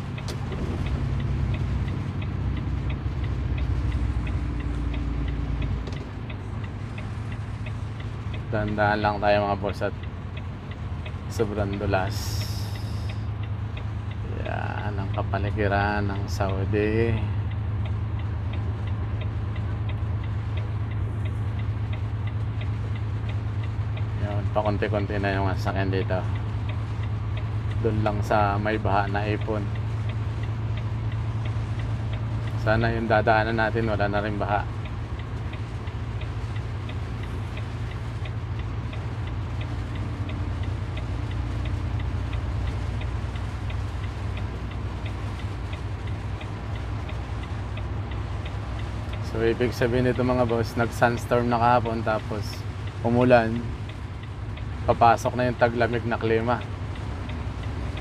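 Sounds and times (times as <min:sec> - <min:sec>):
indicator relay ticking: 0:00.0 - 0:58.0
vehicle driving on wet road: 0:00.0 - 0:58.0
tyre hiss on wet road: 0:12.2 - 0:13.2.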